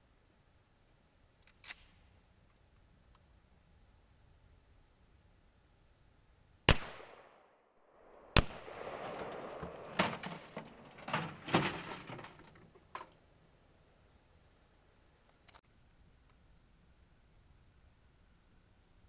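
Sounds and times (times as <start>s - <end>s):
gunshots: 6.7s - 7.5s, 8.1s - 10.8s.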